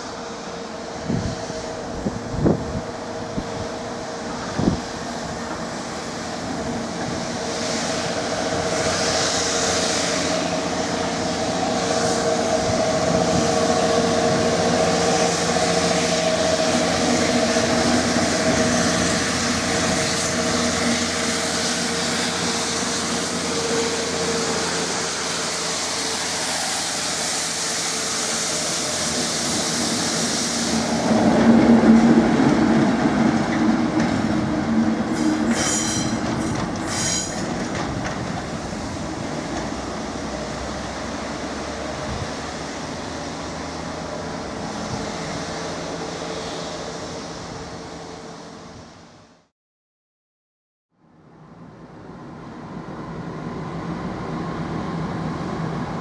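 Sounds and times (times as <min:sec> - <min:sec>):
wagons rumbling over rails: 0:00.0 - 0:48.8
locomotive drone: 0:00.0 - 0:49.3, 0:51.2 - 0:56.0
high hiss: 0:15.3 - 0:31.3.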